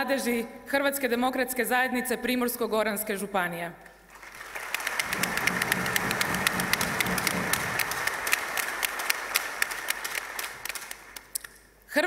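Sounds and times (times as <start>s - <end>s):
large crowd applauding: 4.1s - 11.5s.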